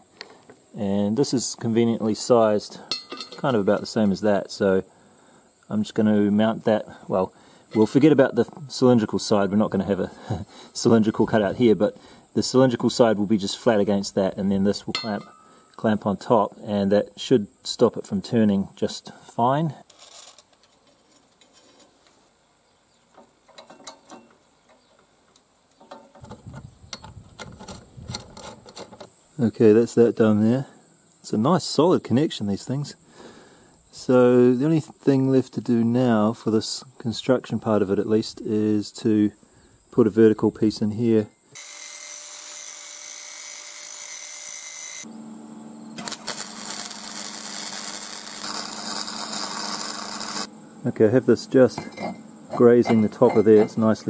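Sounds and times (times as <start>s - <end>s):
angle grinder cutting steel: 41.6s - 45.1s, 46.0s - 50.5s
welder crackling and sizzling: 41.6s - 45.1s, 45.9s - 50.6s.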